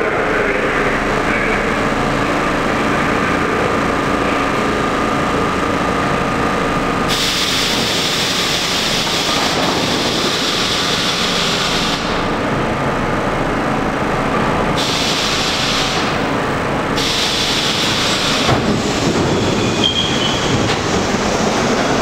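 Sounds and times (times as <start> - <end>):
subway train hum and whine: 0.0 - 22.0
hiss of air: 7.1 - 12.2, 14.8 - 16.2, 17.0 - 19.0.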